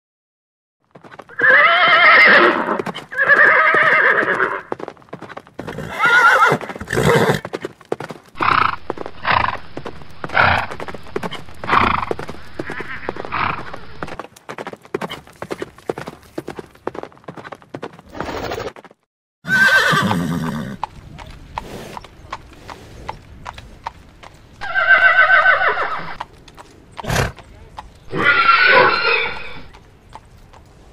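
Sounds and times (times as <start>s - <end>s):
hooves clip-clopping: 0.8s - 19.0s, 19.6s - 30.9s
horse whinnying: 1.3s - 4.7s, 5.6s - 7.5s, 12.6s - 13.8s, 19.4s - 20.9s, 24.6s - 26.2s, 28.1s - 29.8s.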